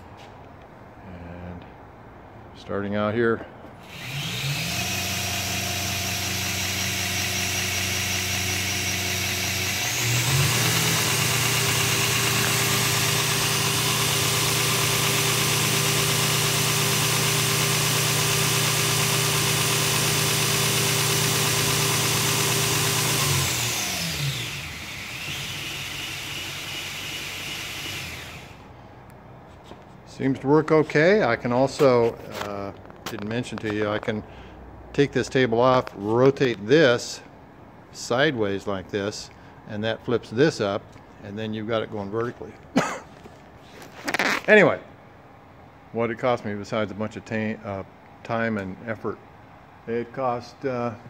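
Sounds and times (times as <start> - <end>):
belt grinder motor whining: 3.8 - 28.7.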